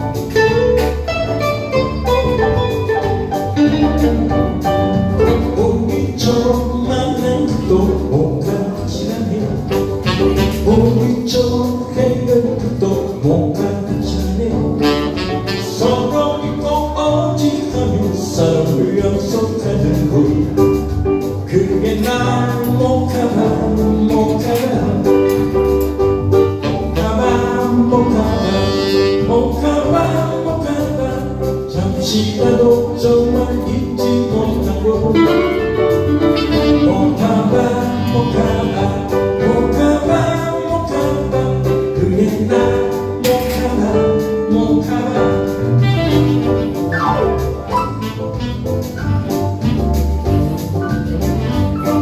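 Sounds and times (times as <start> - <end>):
saxophone melody: 0.0 - 4.9, 9.7 - 10.9, 14.8 - 16.2, 26.3 - 29.5, 35.1 - 39.1, 45.7 - 52.0.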